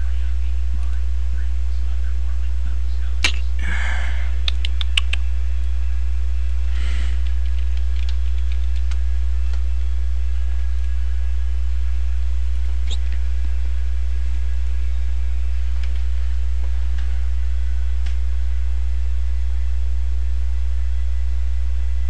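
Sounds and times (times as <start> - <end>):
low electrical hum: 0.0 - 22.0
computer keyboard and mouse clicks: 4.4 - 5.2, 7.2 - 9.6.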